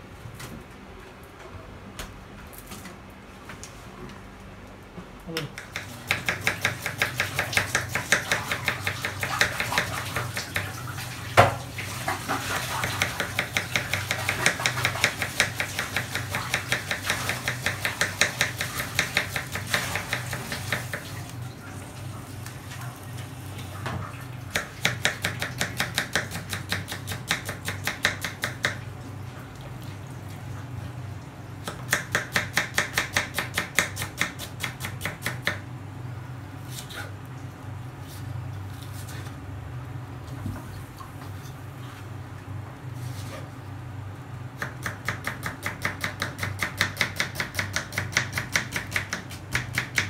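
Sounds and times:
knife chopping on wooden board: 0:05.6 - 0:10.7, 0:12.8 - 0:21.0, 0:24.6 - 0:28.8, 0:44.6 - 0:50.0.

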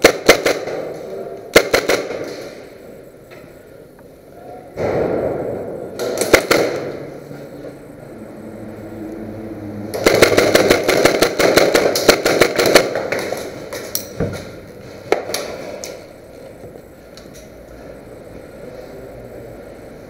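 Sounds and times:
airsoft guns firing: 0:00.0 - 0:02.7, 0:04.8 - 0:07.1, 0:09.9 - 0:14.5, 0:15.1 - 0:16.0.

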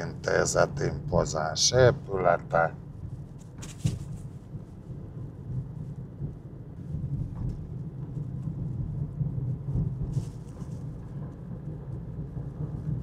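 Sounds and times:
car engine and road rumble: 0:00.0 - 0:13.0.

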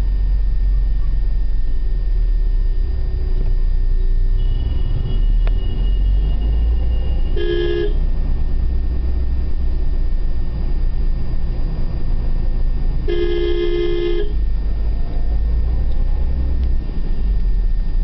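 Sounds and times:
car engine and road noise: 0:00.0 - 0:18.0
car horn blast: 0:04.4 - 0:05.8, 0:07.2 - 0:08.1, 0:13.1 - 0:14.4.

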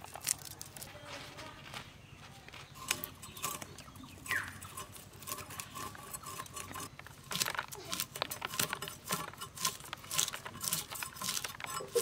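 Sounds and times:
fish scraping and tapping: 0:02.7 - 0:12.0.

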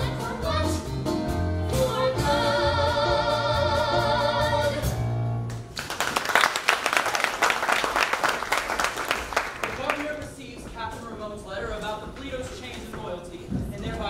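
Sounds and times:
musical accompaniment: 0:00.0 - 0:05.8
audience applause: 0:05.7 - 0:10.1.

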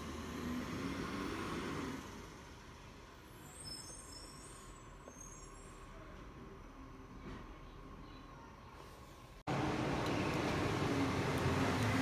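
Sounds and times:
truck engine driving away: 0:00.0 - 0:03.2, 0:09.5 - 0:12.0.

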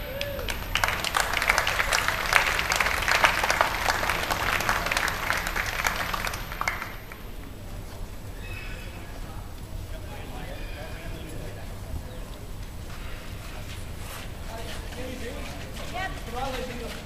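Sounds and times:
crowd applauding: 0:00.0 - 0:07.5.

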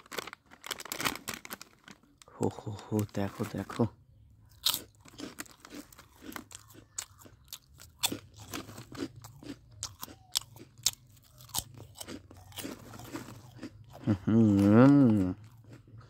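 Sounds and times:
chips crunching: 0:00.0 - 0:03.9, 0:04.5 - 0:16.0
foil packet crackling: 0:00.0 - 0:03.9.

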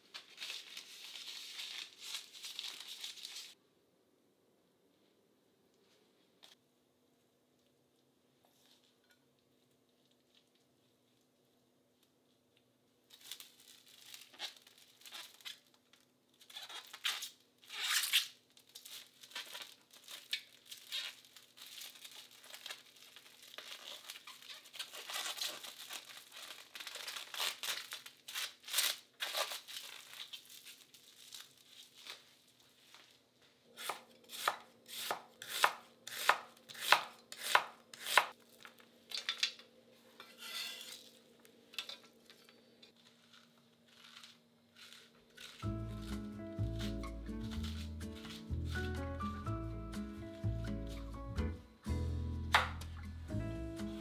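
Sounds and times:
cling film crinkling: 0:00.0 - 0:03.6, 0:13.1 - 0:33.2, 0:43.0 - 0:51.2.

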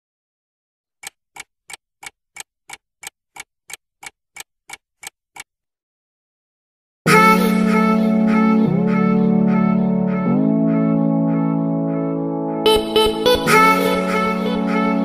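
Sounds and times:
clock ticking: 0:01.0 - 0:05.5.

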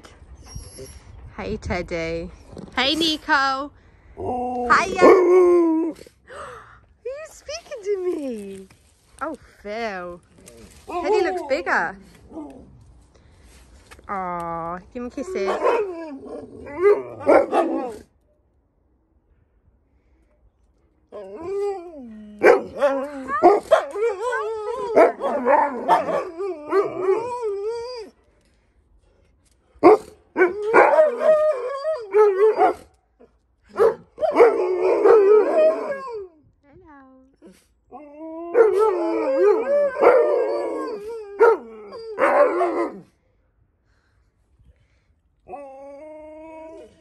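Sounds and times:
dogs barking: 0:15.4 - 0:15.9, 0:16.8 - 0:18.0, 0:22.4 - 0:24.1, 0:24.9 - 0:27.2, 0:29.8 - 0:32.8, 0:33.7 - 0:35.4, 0:42.2 - 0:43.0
dogs howling: 0:21.2 - 0:28.1, 0:30.4 - 0:32.8, 0:34.2 - 0:36.3, 0:38.0 - 0:43.0
dog yelping: 0:22.4 - 0:27.4, 0:33.7 - 0:36.2
dogs howling woo-woo calls: 0:30.4 - 0:32.6, 0:37.9 - 0:43.0.

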